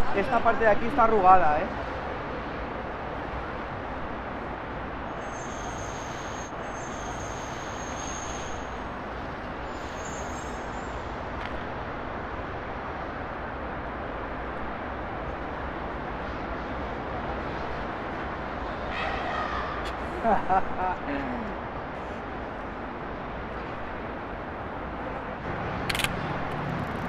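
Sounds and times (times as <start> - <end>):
distant traffic: 0.0 - 27.0.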